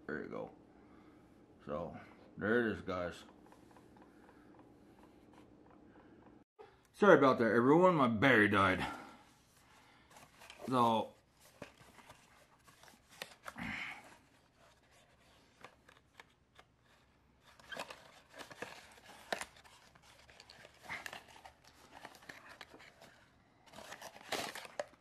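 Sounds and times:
cardboard box rustling: 16.9s - 25.0s.

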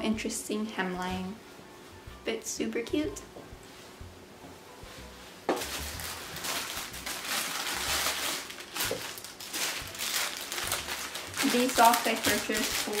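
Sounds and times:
plastic packaging crinkling: 5.6s - 13.0s.

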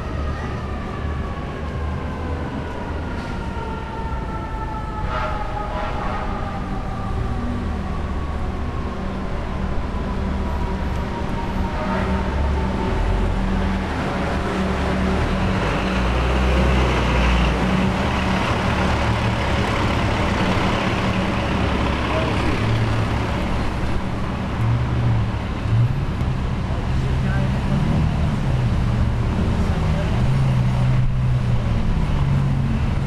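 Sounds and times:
street traffic: 0.0s - 33.0s.

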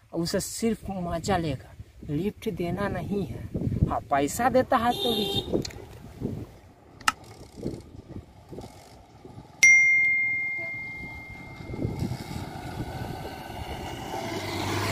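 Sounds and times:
low outdoor rumble: 0.0s - 14.9s
bell ding: 9.6s - 12.0s.

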